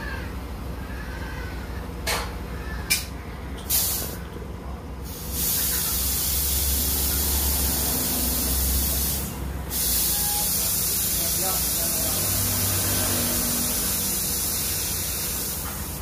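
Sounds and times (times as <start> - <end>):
compressed air hissing: 3.6 - 4.2, 5.0 - 16.0.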